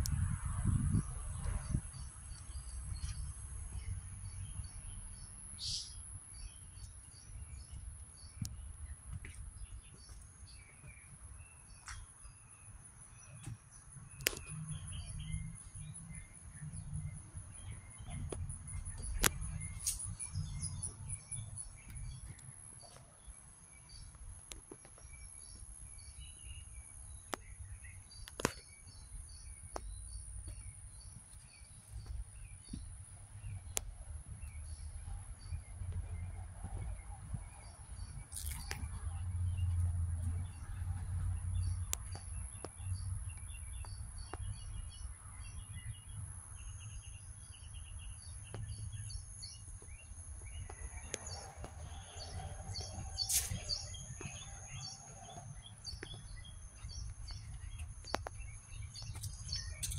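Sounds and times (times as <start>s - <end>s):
low microphone rumble: 0.0s - 5.3s
bird chirps: 0.9s - 24.2s, 41.6s - 59.9s.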